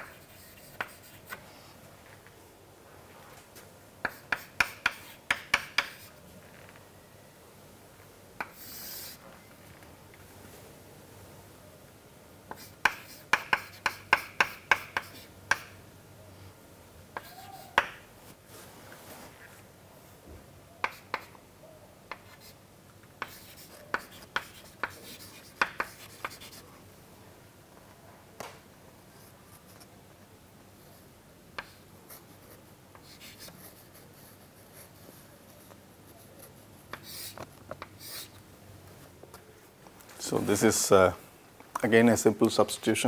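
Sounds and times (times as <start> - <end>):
chalk tapping and scratching on a chalkboard: 0.0 - 1.5, 4.0 - 6.1, 8.4 - 9.2, 12.5 - 15.8, 17.2 - 18.0, 20.8 - 21.4, 22.1 - 22.6, 23.2 - 26.7, 31.6 - 35.8, 36.9 - 38.4.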